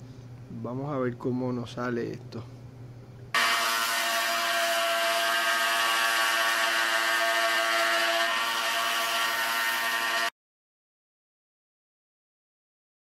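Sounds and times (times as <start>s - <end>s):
scroll saw cutting circuit board: 3.4s - 10.3s.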